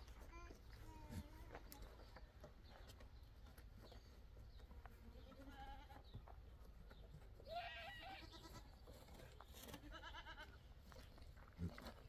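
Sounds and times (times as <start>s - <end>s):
goat bleating: 5.2s - 6.0s, 7.4s - 8.8s, 9.7s - 10.6s.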